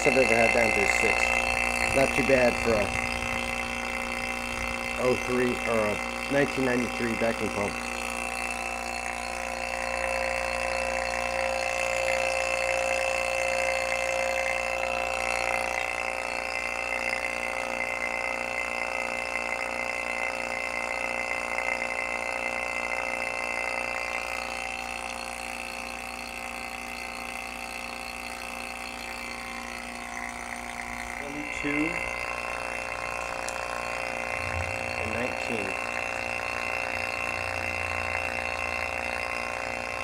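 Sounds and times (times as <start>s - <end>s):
vacuum pump motor humming: 0.0s - 40.0s.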